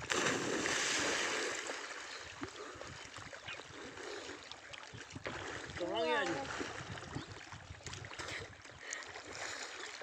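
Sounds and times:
water splashing and rushing: 0.0 - 10.0
faint water trickle: 1.6 - 10.0.

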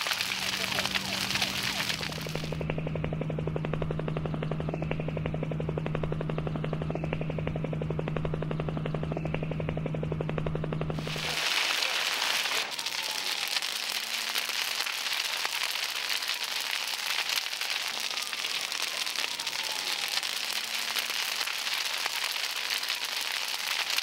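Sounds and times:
fire crackling and hissing: 0.0 - 2.6, 11.0 - 24.0.

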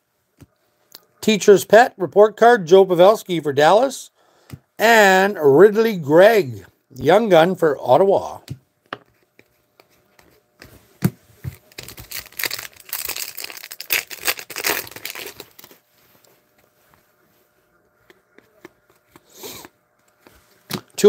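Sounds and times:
foil wrapper crinkling: 11.5 - 15.9
foil wrapper tearing: 11.6 - 15.8.

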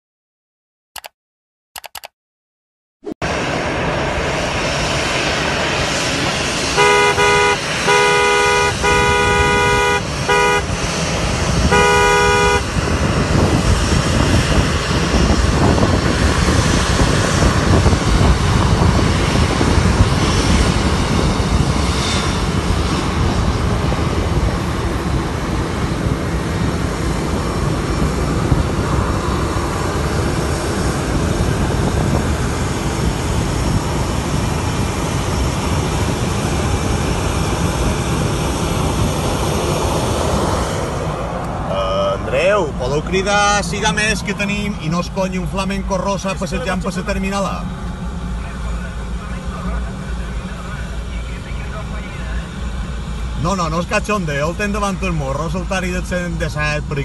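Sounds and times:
rumble of traffic: 3.2 - 57.0
vehicle horn honking: 6.7 - 11.0, 11.6 - 12.8.

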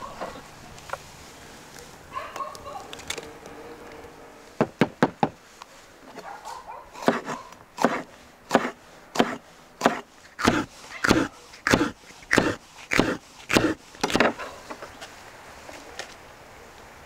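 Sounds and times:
knife chopping on wooden board: 7.0 - 14.4.

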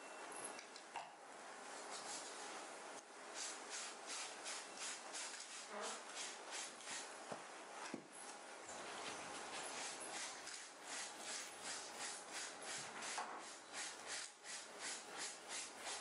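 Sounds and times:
scrubber rubbing fabric: 9.4 - 16.0.

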